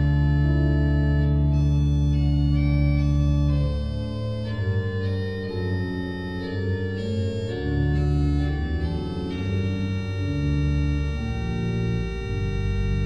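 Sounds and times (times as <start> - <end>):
deep bass: 0.0 - 13.0
slow organ chords: 0.0 - 13.0.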